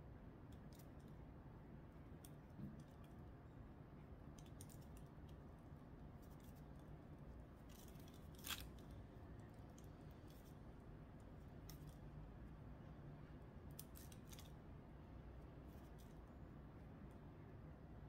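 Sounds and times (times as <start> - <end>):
crunch: 7.6 - 10.6.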